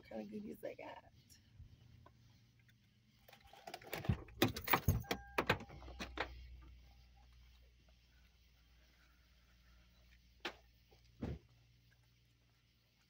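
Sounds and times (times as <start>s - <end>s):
short steady beep: 5.0s - 5.8s.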